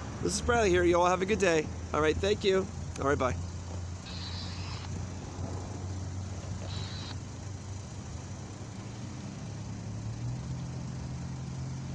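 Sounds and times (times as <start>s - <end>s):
cars driving over railroad crossing: 0.0s - 11.9s
engine and tyre hum: 0.0s - 11.9s.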